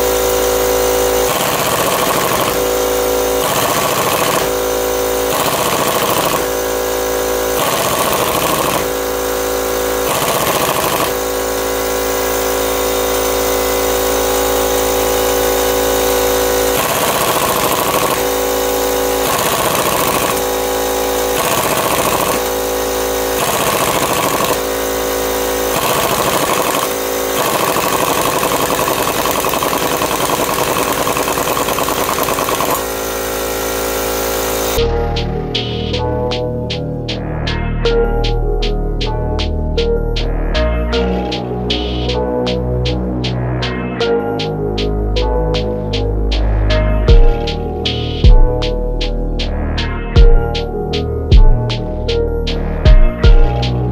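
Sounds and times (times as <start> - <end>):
impact wrench hammering: 0.0 - 37.2, 47.1 - 49.2, 50.2 - 52.2, 52.8 - 53.8.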